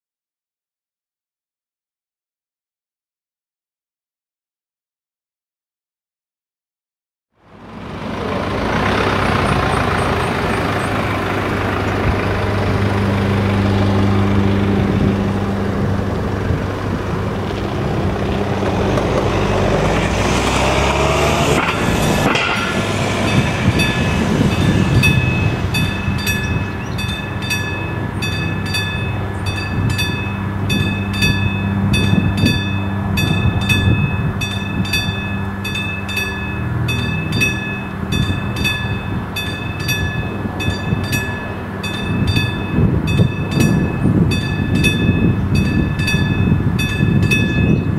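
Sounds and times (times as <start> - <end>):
low engine hum: 7.4 - 47.9
vehicle engine driving off: 7.4 - 47.9
level crossing warning bell: 21.5 - 47.9.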